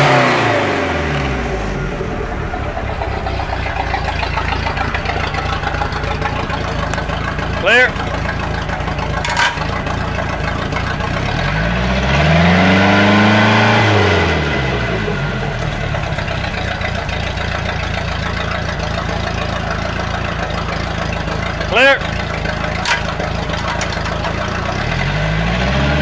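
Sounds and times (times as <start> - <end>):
boat engine idling and revving: 0.0 - 26.0
man talking: 7.6 - 8.0, 21.7 - 22.0.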